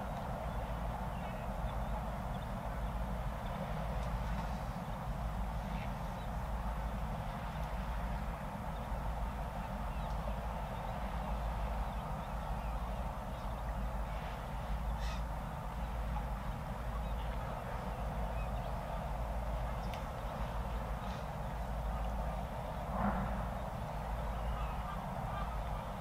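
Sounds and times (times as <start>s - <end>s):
low outdoor rumble: 0.0s - 26.0s
crow-like bird calls: 15.0s - 15.3s.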